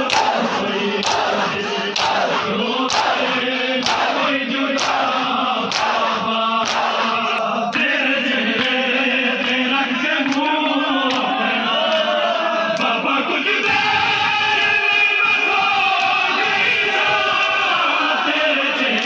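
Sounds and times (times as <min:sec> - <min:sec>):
hands slapping chests: 0:00.0 - 0:07.5
men chanting in unison: 0:00.0 - 0:19.0.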